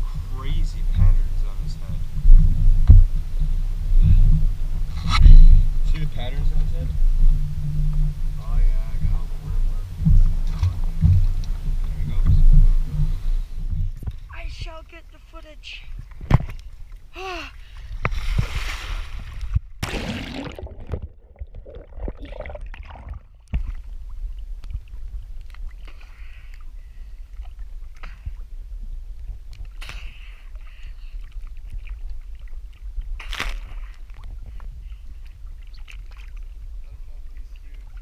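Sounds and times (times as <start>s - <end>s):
low rumble: 0.0s - 14.7s
water sloshing and splashing: 15.8s - 38.0s.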